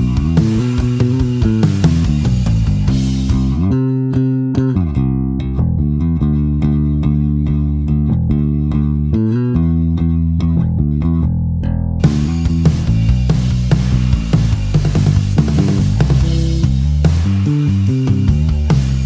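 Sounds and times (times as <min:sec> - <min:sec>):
electric bass played fingerstyle: 0:00.0 - 0:19.0.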